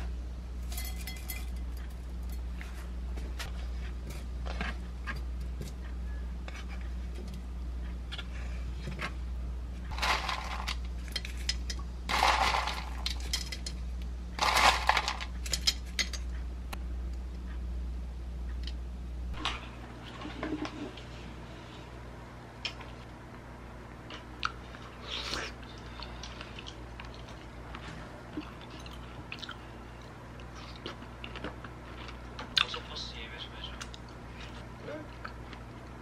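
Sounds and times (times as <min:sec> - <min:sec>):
low hum: 0:00.0 - 0:36.0
spoon clinking against bowl: 0:00.7 - 0:01.7.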